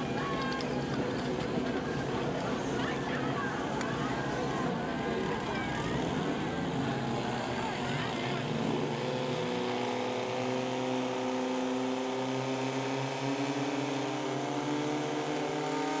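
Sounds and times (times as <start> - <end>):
fire pump engines running: 0.0 - 15.3.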